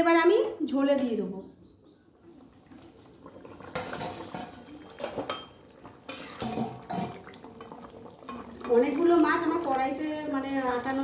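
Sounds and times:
metal bowl and spatula clanking: 3.7 - 7.2.

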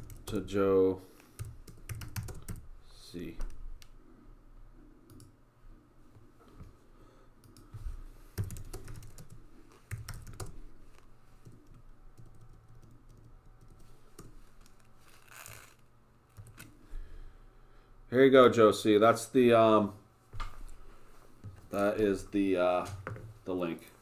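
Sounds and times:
keyboard typing: 0.0 - 0.4, 1.4 - 2.6, 5.1 - 5.3, 8.4 - 10.6, 11.4 - 14.9.

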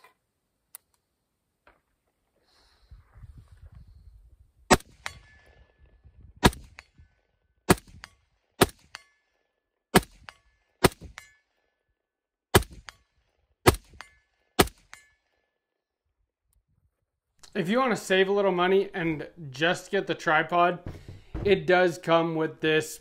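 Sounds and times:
rifle shots: 4.7 - 5.3, 6.4 - 6.8, 7.7 - 9.0, 9.9 - 11.3, 12.5 - 12.9, 13.6 - 14.0, 14.6 - 15.0
bullet ringing steel target: 4.7 - 5.5, 10.0 - 11.6, 12.6 - 15.4.

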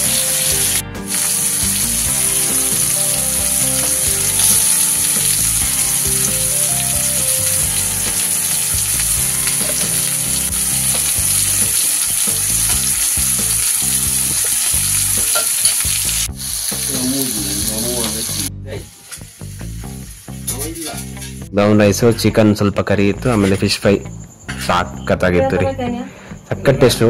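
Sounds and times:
spoon working in pan: 0.0 - 16.9
oil sizzling: 0.0 - 21.5.

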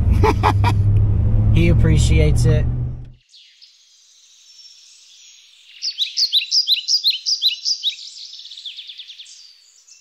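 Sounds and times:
songbirds chirping and trilling: 3.2 - 10.0.

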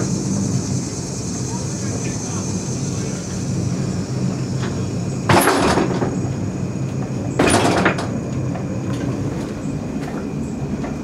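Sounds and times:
funicular cable humming: 0.0 - 11.0
loud clatter: 5.3 - 6.2, 7.4 - 8.2.

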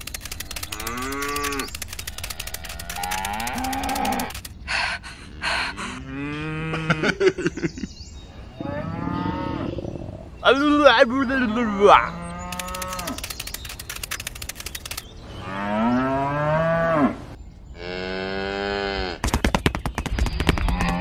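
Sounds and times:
quick noisy bursts: 0.0 - 4.6, 12.5 - 15.1.

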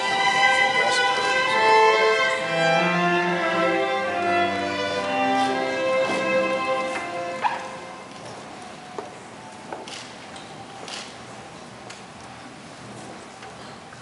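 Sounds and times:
low bowed strings: 0.0 - 8.2
violin melody: 0.0 - 8.3.

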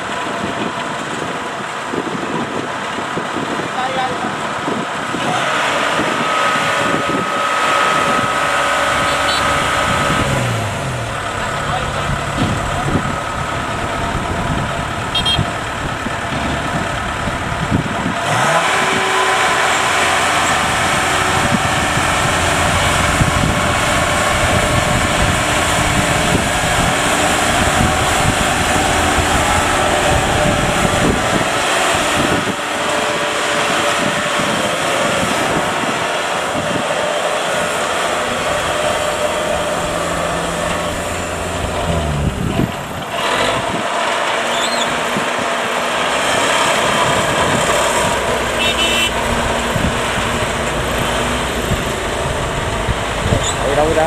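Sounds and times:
diesel engine running under load: 0.0 - 54.0.

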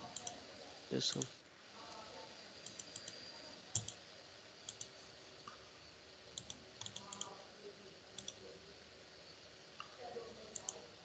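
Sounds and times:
computer mouse clicks: 0.0 - 0.4, 2.6 - 4.0, 4.6 - 5.6, 6.3 - 7.4, 8.2 - 8.4, 9.8 - 10.8.

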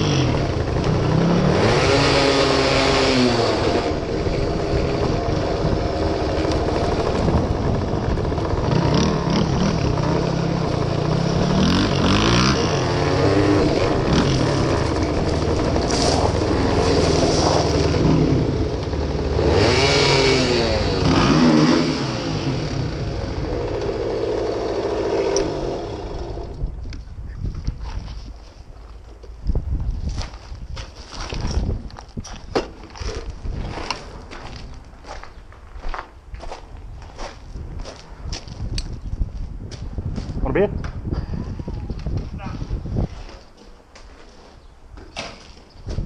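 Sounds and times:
tyres on gravel: 0.0 - 21.0, 27.7 - 40.4
two-stroke motorcycle engine revving: 0.0 - 26.8
second dirt bike engine: 0.0 - 28.2.

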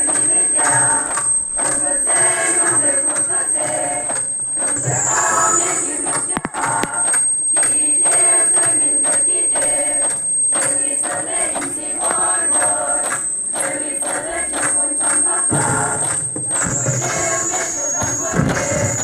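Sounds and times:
girls chanting: 0.0 - 7.1, 7.8 - 19.0
high-pitched whine: 0.0 - 19.0
bamboo poles clapping: 6.1 - 16.8.

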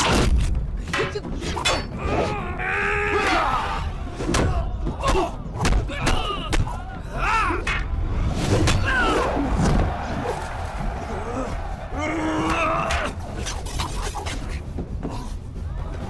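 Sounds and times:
shouted battle cries: 1.9 - 13.4
crowd yelling: 2.0 - 13.8.

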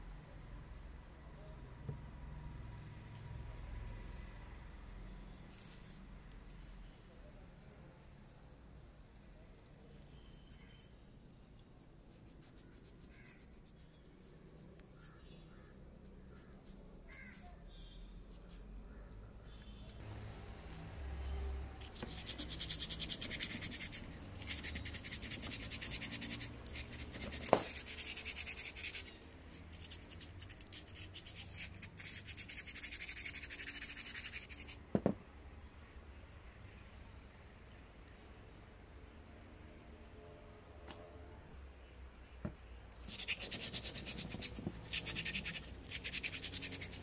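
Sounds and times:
part set down on table: 34.9 - 35.2.

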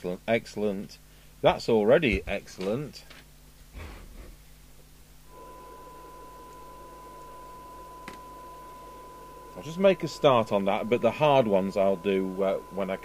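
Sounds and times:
faint receiver hiss: 1.4 - 3.4, 4.7 - 13.0
steady test tone: 5.2 - 13.0.

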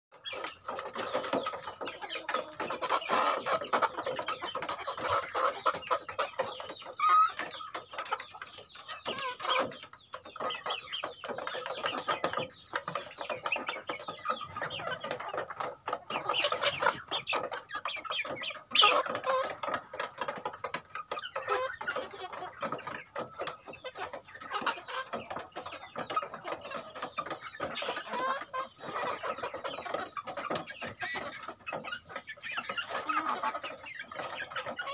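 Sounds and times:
beaks pecking at feed tray: 0.1 - 34.9
chickens clucking: 0.1 - 34.9.

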